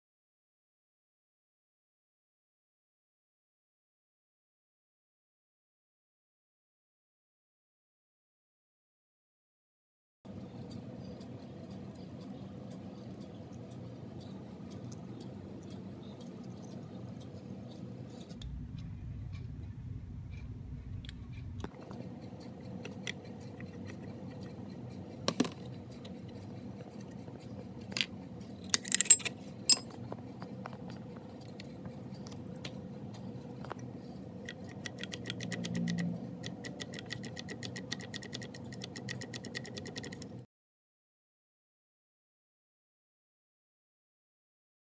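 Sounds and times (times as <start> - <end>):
steady low hum: 10.3 - 40.4
sharp metallic clinks: 28.8 - 29.9.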